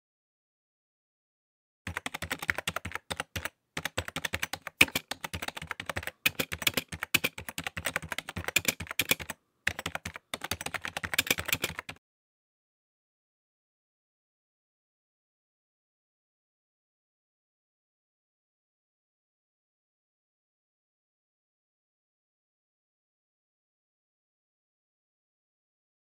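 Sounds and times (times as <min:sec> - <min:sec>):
computer keyboard typing: 0:01.9 - 0:12.0.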